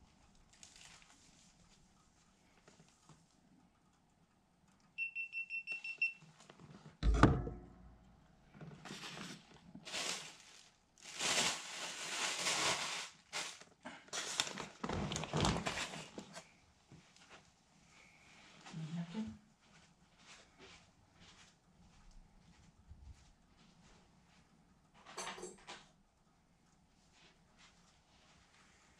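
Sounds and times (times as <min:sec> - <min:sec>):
food bags rustling and crinkling: 0:00.4 - 0:01.8, 0:08.6 - 0:16.5
hard knock with ring: 0:07.0 - 0:07.8.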